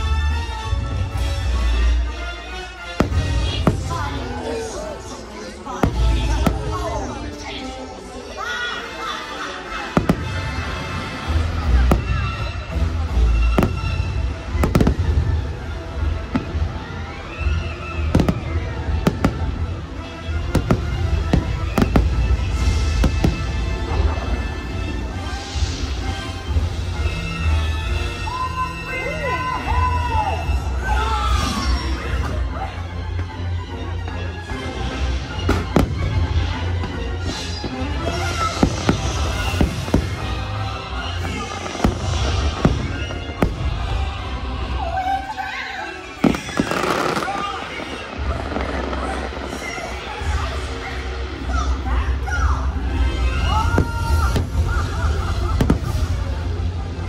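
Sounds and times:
soundtrack music: 0:00.0 - 0:57.0
fireworks bangs: 0:03.0 - 0:05.0, 0:05.7 - 0:07.4, 0:09.6 - 0:26.8, 0:35.4 - 0:44.7, 0:46.1 - 0:51.0, 0:52.9 - 0:57.0.

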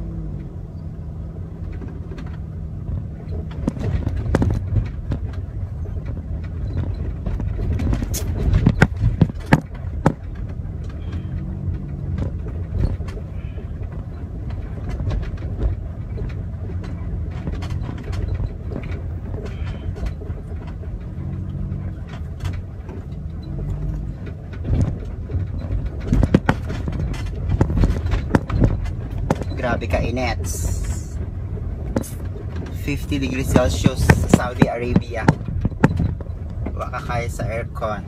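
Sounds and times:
car engine and road noise: 0:00.0 - 0:38.0.

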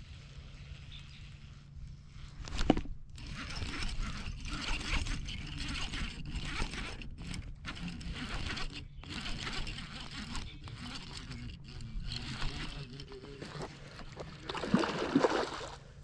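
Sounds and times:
fishing reel handling noise: 0:02.4 - 0:14.2.

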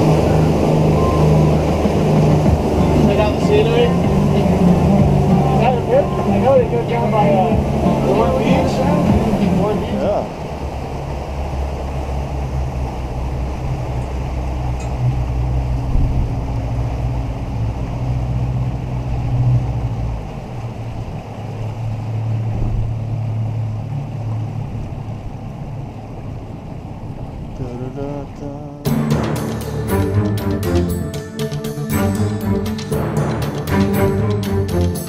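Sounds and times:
boat engine running: 0:00.0 - 0:35.0
water rushing along hull: 0:00.0 - 0:35.0
wind on microphone: 0:09.0 - 0:25.5.

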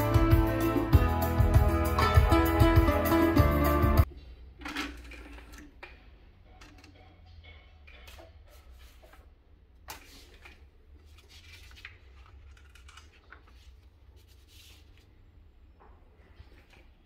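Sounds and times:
paper pages rustling: 0:09.9 - 0:15.2.

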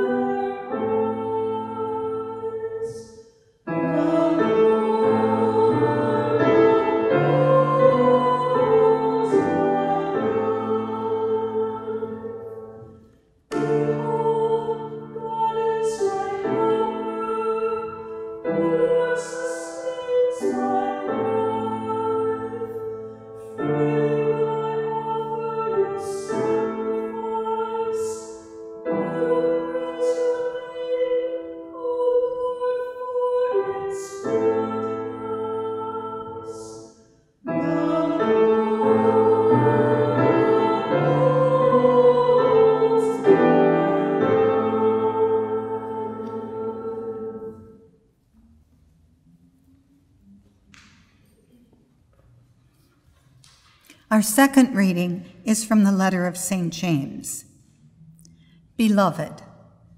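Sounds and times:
piano accompaniment: 0:03.7 - 0:36.2, 0:37.4 - 0:47.8
person singing psalm: 0:03.8 - 0:12.6, 0:13.5 - 0:36.9, 0:37.5 - 0:47.7.

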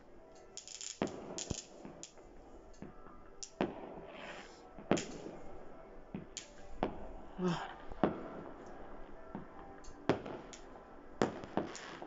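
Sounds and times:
firework bangs: 0:00.6 - 0:02.2, 0:08.0 - 0:08.6, 0:10.1 - 0:12.0
firework crackling: 0:00.6 - 0:02.4, 0:03.4 - 0:05.6, 0:10.1 - 0:12.0.

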